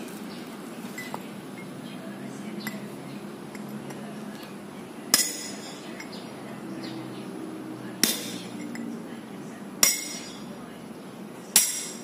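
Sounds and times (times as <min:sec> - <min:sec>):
hammer striking chisel on metal: 0:05.1 - 0:06.1, 0:08.0 - 0:08.8, 0:09.8 - 0:10.5, 0:11.5 - 0:12.0.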